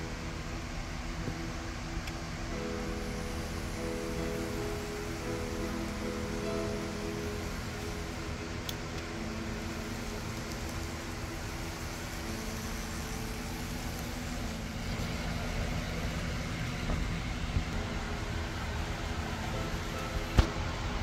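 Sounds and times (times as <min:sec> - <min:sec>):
model train motor humming: 0:00.0 - 0:21.0
wheels rumbling on rails: 0:00.0 - 0:21.0.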